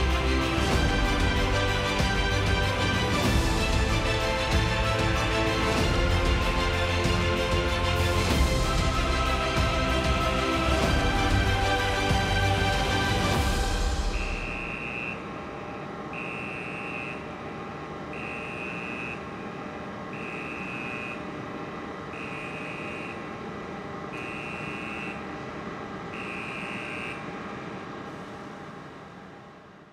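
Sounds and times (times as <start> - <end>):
mechanical hum: 13.3 - 29.9
electronic warning beeps: 14.2 - 15.2.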